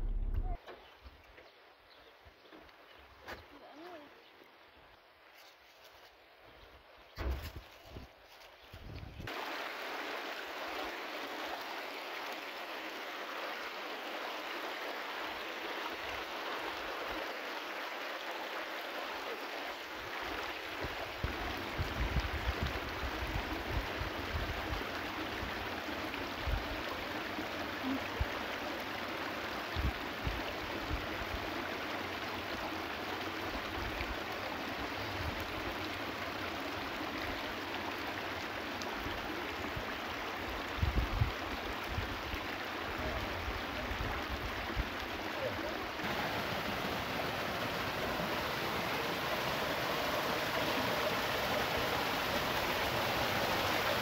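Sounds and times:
low thumps: 0.0 - 0.6
stream running over stones: 0.0 - 54.0.

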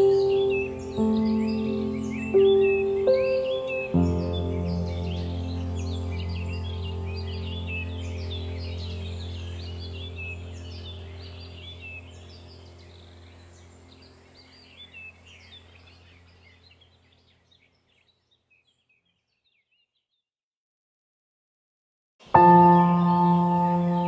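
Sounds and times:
low steady drone: 0.0 - 15.8
birdsong chirping: 0.0 - 20.2, 22.2 - 24.0.

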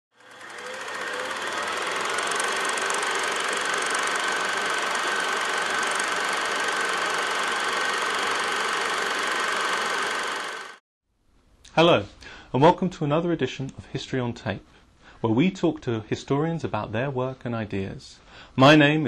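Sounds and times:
film projector clatter: 0.1 - 10.8.

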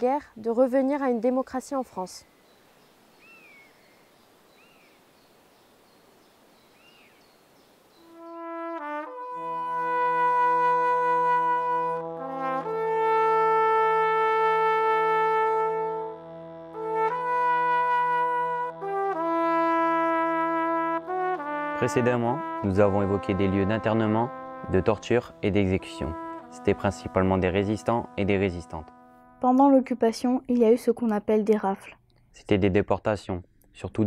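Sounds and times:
faint bird chirps: 1.9 - 8.4
slow brass music: 7.9 - 30.0.

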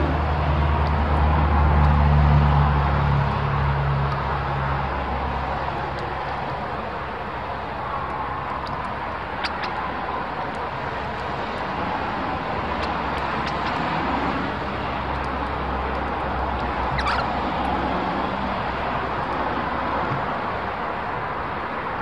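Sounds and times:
bird calls: 9.4 - 10.2, 12.7 - 14.2, 16.9 - 17.5.

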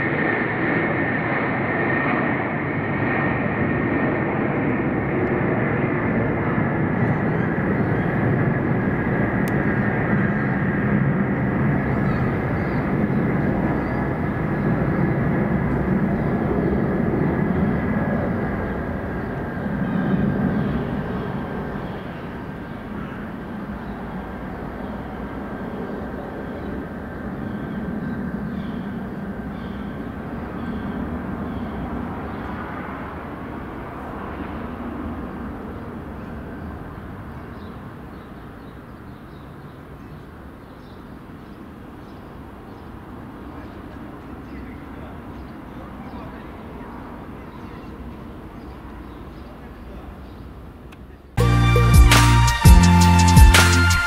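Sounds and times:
deep jet roar: 0.0 - 37.3
high fan whine: 0.0 - 39.1.

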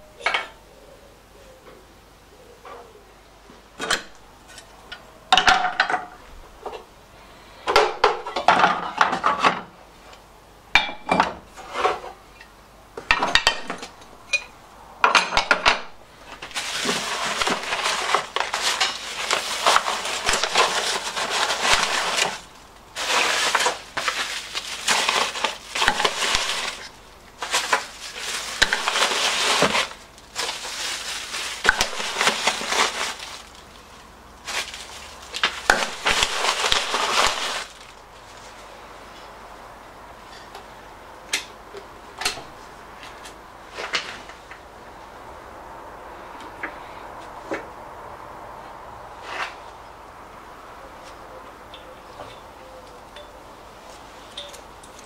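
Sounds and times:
tissue paper and plastic rustling: 16.2 - 39.1.

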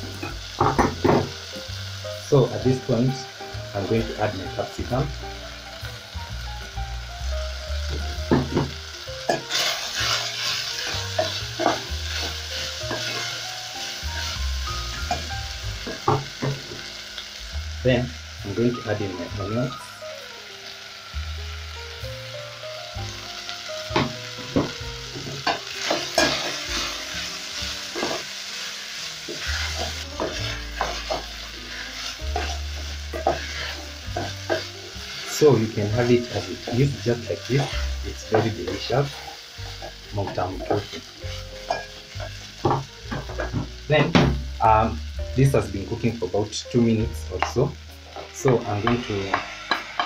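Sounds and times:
meat and vegetables sizzling: 0.0 - 50.0
wooden spoon scraping a pot: 9.5 - 13.4, 32.0 - 35.5
wooden spoon stirring in pot: 29.3 - 43.8.

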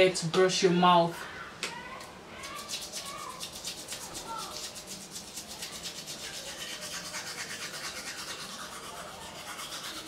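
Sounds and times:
toothbrush scrubbing teeth: 2.4 - 10.0.

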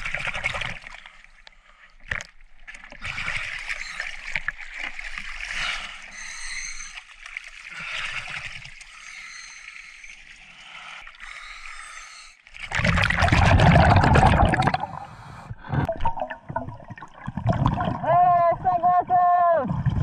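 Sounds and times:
rush of water and bubbles: 0.0 - 1.4, 2.0 - 18.9, 19.6 - 20.0
underwater bubbling and gurgling: 0.0 - 18.8, 19.7 - 20.0
water lapping and trickling: 0.0 - 20.0.

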